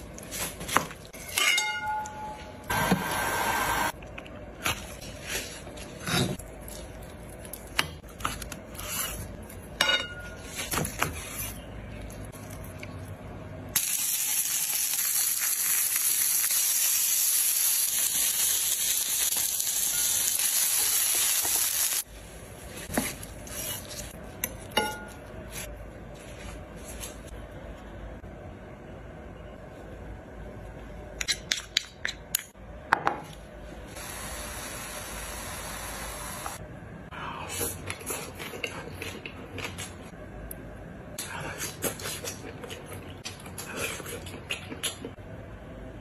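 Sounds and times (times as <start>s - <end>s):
meat sizzling in a pan: 13.8s - 22.0s.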